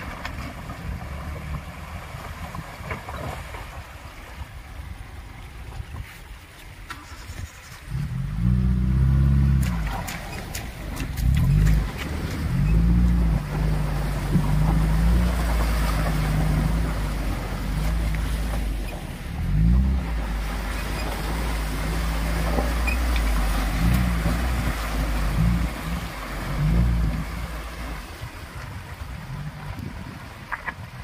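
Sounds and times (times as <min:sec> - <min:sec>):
water splashing around wheels: 0:00.0 - 0:31.0
car engine revving: 0:07.9 - 0:28.0.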